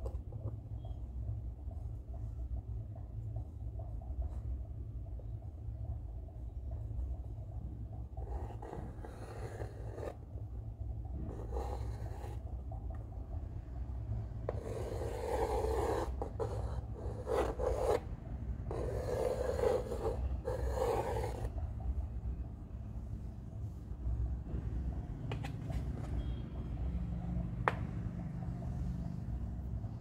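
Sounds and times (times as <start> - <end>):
steady low hum: 0.0 - 30.0
compass pencil scraping on board: 8.1 - 10.2, 11.2 - 12.5, 14.5 - 18.1, 18.7 - 21.6.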